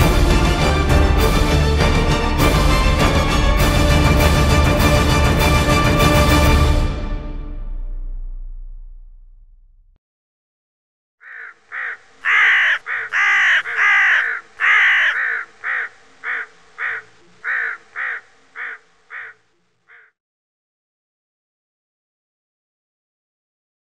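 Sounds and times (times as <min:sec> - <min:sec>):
crow cawing: 0:11.2 - 0:20.2.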